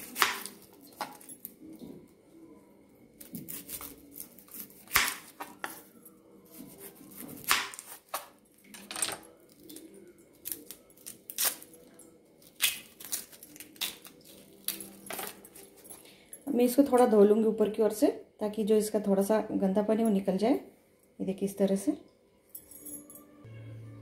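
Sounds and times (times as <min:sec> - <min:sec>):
onion skin crackling and rustling: 0:03.2 - 0:08.4, 0:09.4 - 0:15.9.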